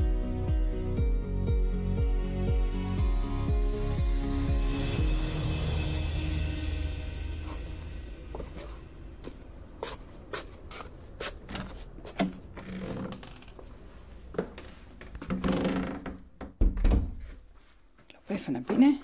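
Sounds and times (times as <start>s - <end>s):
rustling scrape: 7.3s - 12.2s
footsteps in clogs: 7.5s - 12.8s.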